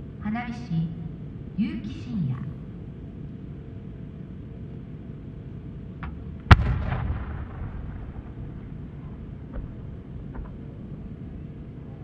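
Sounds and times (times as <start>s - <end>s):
low background rumble: 0.0s - 12.0s
firework mortar boom: 6.5s - 8.6s.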